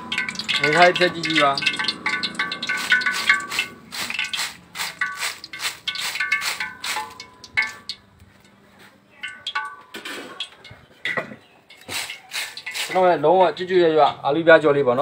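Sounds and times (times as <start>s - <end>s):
metal mesh strainer clanking: 0.0s - 8.1s, 9.2s - 13.7s.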